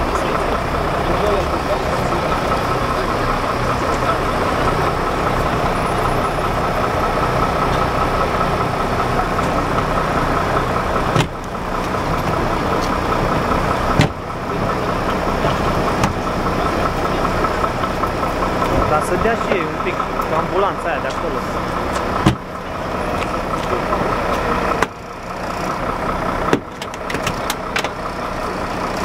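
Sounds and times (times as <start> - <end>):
engine idling: 0.0 - 29.0
sharp knocks: 13.9 - 14.2.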